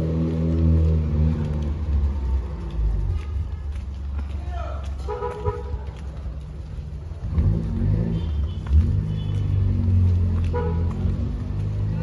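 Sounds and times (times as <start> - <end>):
vehicle engine revving: 0.0 - 3.0, 7.1 - 12.0
street rumble: 0.0 - 12.0.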